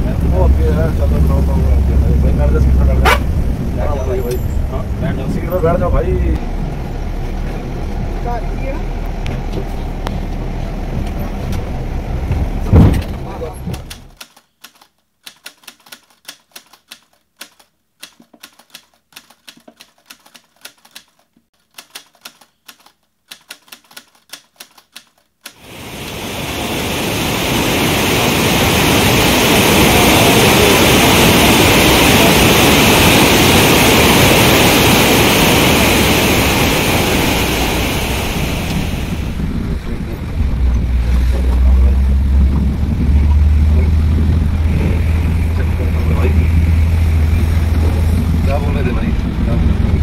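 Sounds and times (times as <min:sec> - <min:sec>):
bus engine hum: 0:00.0 - 0:14.2, 0:25.7 - 0:50.0
typewriter key clicks: 0:14.2 - 0:25.6
river rapids rushing: 0:25.6 - 0:39.4.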